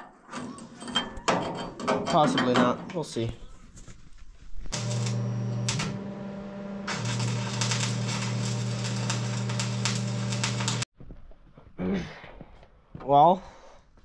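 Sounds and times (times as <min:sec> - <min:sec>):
welding arc crackling and sizzling: 0:04.6 - 0:10.9
steady electrical buzz: 0:04.8 - 0:10.9.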